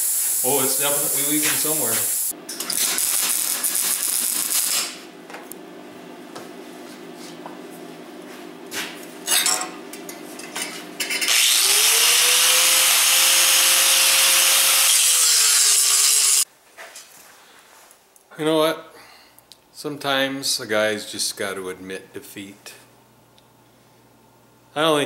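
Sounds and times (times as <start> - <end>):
welding crackle: 0.0 - 5.0
tools clattering: 9.2 - 11.3
angle grinder grinding metal: 11.2 - 16.4.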